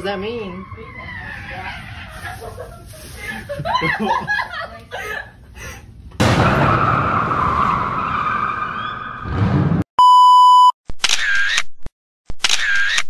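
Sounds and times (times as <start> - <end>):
test tone beep: 10.0 - 10.7.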